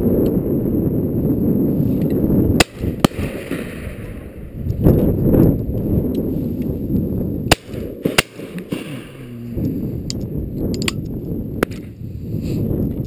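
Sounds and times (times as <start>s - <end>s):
wind noise on microphone: 0.0s - 13.0s
shotgun cracks: 2.6s - 4.4s, 7.5s - 9.4s.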